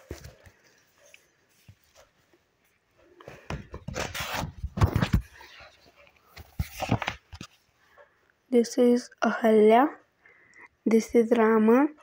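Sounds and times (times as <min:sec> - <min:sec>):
microphone handling rustling: 0:03.4 - 0:07.6.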